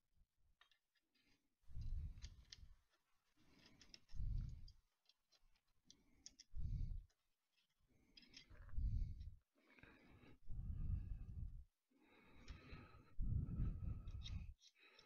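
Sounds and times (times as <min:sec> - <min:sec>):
low muffled rumbles: 0:13.2 - 0:14.5.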